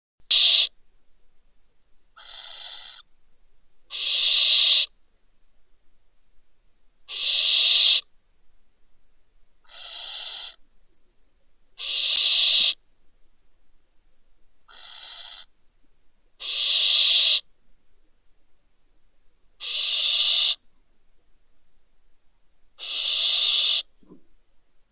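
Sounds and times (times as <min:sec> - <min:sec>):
barn owl hissing screeches: 0:00.3 - 0:00.7, 0:02.2 - 0:03.0, 0:03.9 - 0:04.9, 0:07.1 - 0:08.1, 0:09.7 - 0:10.6, 0:11.8 - 0:12.8, 0:14.7 - 0:15.5, 0:16.4 - 0:17.5, 0:19.6 - 0:20.6, 0:22.8 - 0:23.9.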